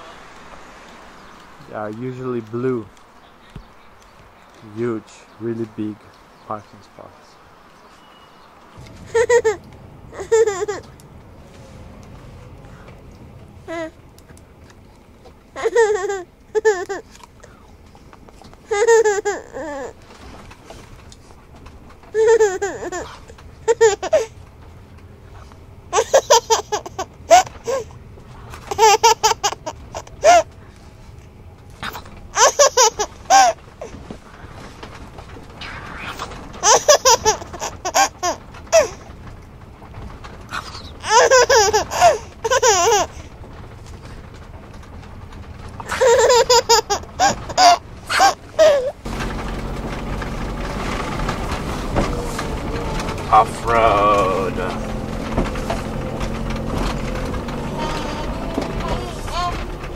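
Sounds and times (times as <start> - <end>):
baby laughing: 8.9 - 11.0, 13.7 - 14.0, 15.6 - 17.2, 18.6 - 20.1, 22.1 - 24.4, 25.9 - 28.0, 28.6 - 30.5, 31.8 - 34.0, 36.0 - 39.1, 40.5 - 43.3, 45.8 - 49.0, 57.7 - 59.9.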